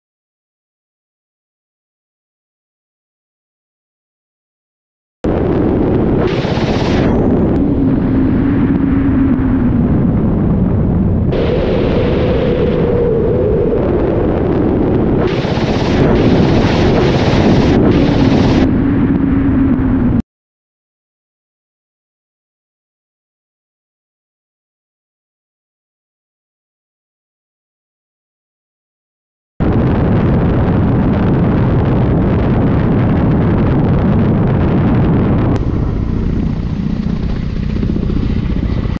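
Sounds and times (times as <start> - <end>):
wind rush: 5.2 - 20.2, 29.6 - 39.0
helicopter rotors and engines drone: 5.3 - 20.2, 29.6 - 39.0.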